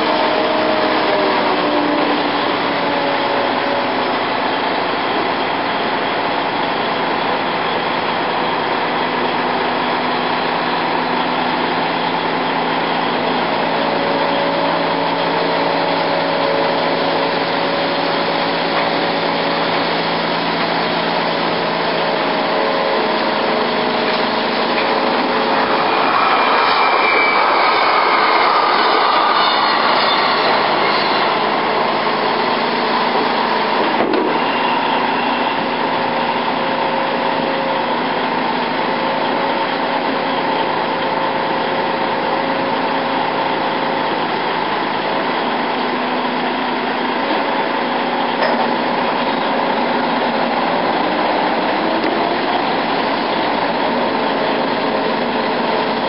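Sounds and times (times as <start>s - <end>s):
crane diesel engine and hydraulics: 0.0s - 56.0s
metal clank: 48.4s - 48.8s.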